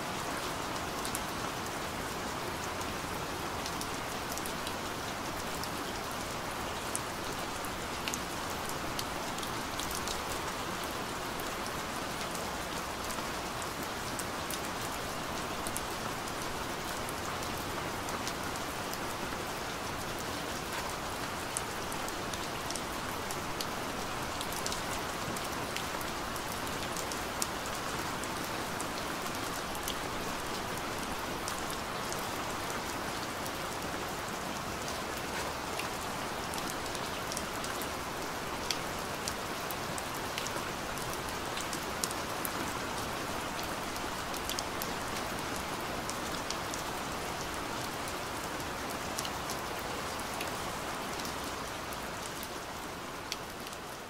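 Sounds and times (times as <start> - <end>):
steady rain hiss: 0.0 - 54.0.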